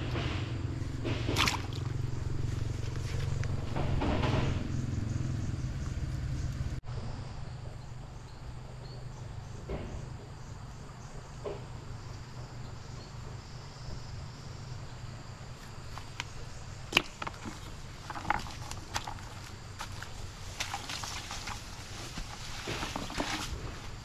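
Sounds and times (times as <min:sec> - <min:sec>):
insects chirring: 0:00.0 - 0:24.0
low steady rumble: 0:00.0 - 0:24.0
rustling: 0:17.0 - 0:24.0.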